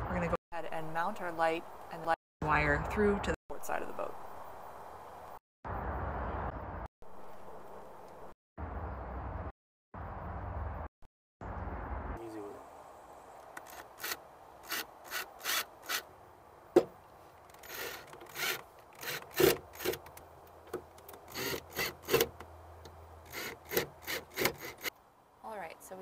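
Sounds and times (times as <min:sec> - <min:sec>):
cordless drill driving screws: 0:13.6 - 0:16.1, 0:17.5 - 0:20.1, 0:21.2 - 0:22.4, 0:23.3 - 0:24.9.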